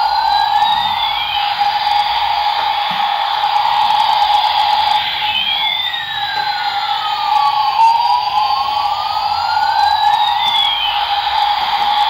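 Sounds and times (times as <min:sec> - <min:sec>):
toy helicopter buzzing siren effect: 0:00.0 - 0:12.0
toy motor whirring: 0:00.0 - 0:12.0.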